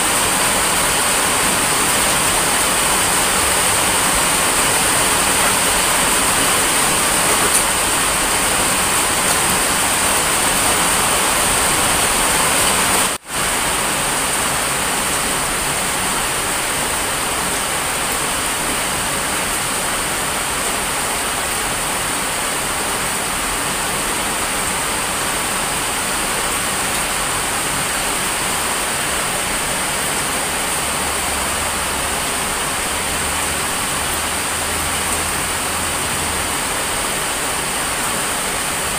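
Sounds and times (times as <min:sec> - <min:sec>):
heavy rain falling: 0:00.0 - 0:38.9.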